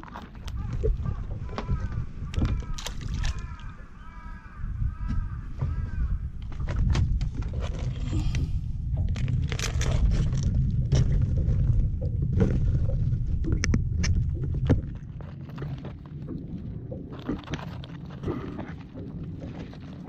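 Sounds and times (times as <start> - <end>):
steady low rumble: 0.0 - 20.0
crab claws clicking and scraping: 2.3 - 3.6.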